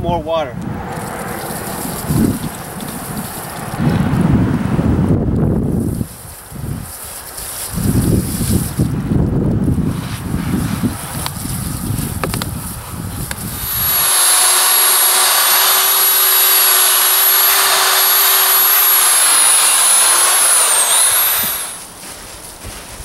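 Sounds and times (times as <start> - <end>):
wind noise: 0.0 - 23.0
electric drill mixing paddle whine: 0.6 - 4.3, 13.3 - 22.0
hose nozzle spraying water: 0.9 - 3.8, 13.3 - 21.9.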